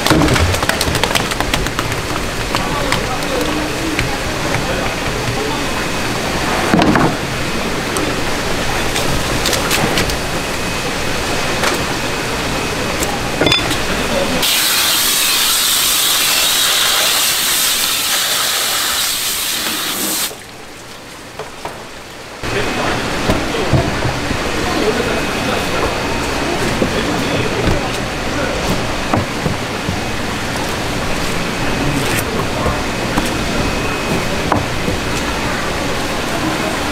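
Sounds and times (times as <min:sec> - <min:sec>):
shop background murmur: 0:01.9 - 0:15.8, 0:22.4 - 0:36.9
pressurised water spray hissing: 0:14.4 - 0:20.4.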